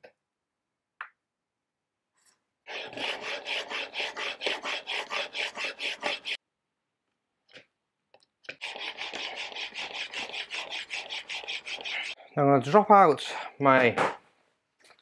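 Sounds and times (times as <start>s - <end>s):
chisel scraping on sharpening plate: 2.7s - 6.4s.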